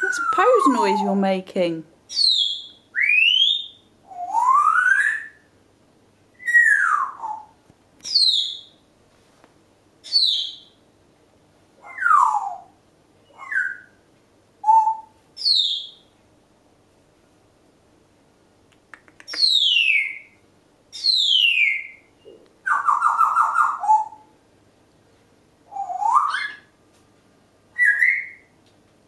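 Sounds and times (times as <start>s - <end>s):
parrot whistling: 0.0s - 0.7s, 2.1s - 5.5s, 6.4s - 7.5s, 13.3s - 14.0s, 25.7s - 26.7s, 27.7s - 28.5s.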